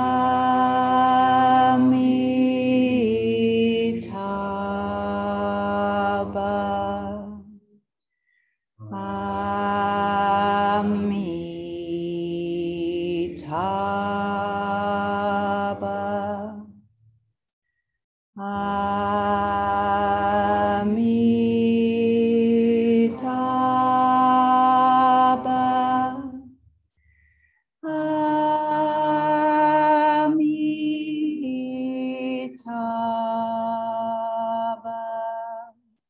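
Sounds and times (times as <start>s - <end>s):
voices chanting in unison: 0.0s - 7.5s, 8.8s - 16.7s, 18.4s - 26.5s, 27.8s - 35.8s.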